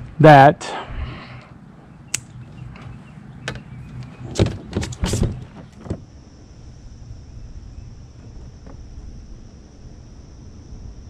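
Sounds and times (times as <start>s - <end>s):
low steady hum: 0.0s - 11.0s
steady high hiss: 4.8s - 11.0s.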